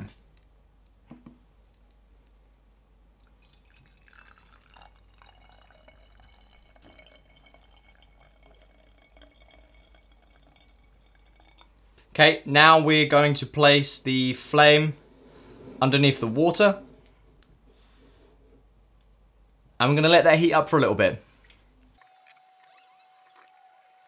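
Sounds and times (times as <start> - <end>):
water trickling into glass: 3.0 - 11.9.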